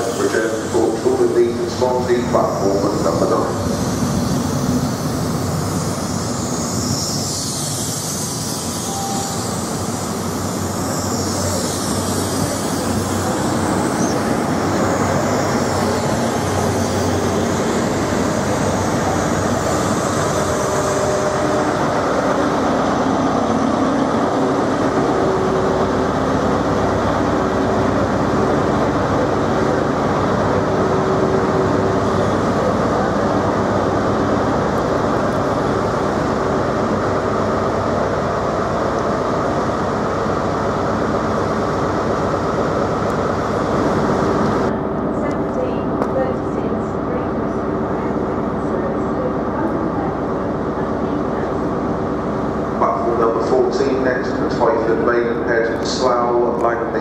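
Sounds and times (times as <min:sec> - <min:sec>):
high rushing hiss: 0:00.0 - 0:38.3
diesel train engine: 0:00.0 - 0:57.0
idling train engines humming: 0:00.0 - 0:57.0
wheel and rail noise: 0:00.0 - 0:57.0.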